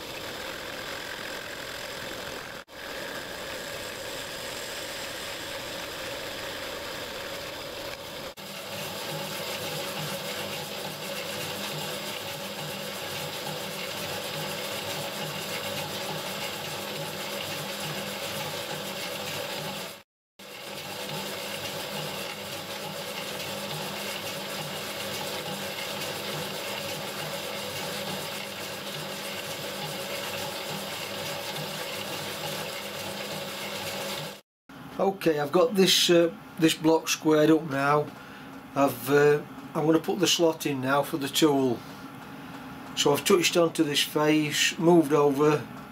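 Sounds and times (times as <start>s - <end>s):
metal lathe running: 0.0s - 34.4s.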